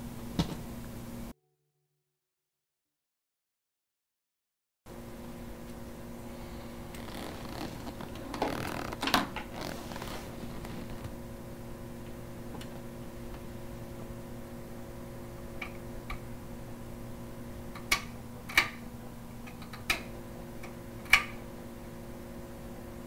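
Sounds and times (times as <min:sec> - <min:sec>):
low room hum: 0:04.9 - 0:23.0.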